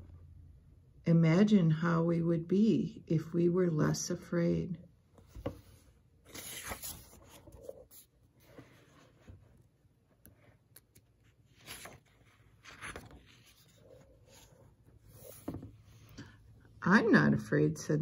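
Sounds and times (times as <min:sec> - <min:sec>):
book pages turning: 0:05.2 - 0:16.2.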